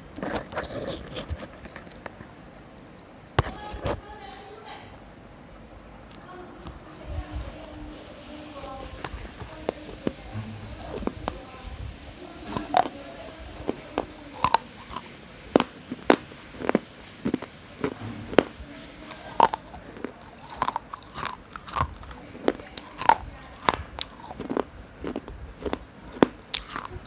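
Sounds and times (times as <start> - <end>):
person chewing crunchy food: 0.0 - 2.2, 12.4 - 27.0.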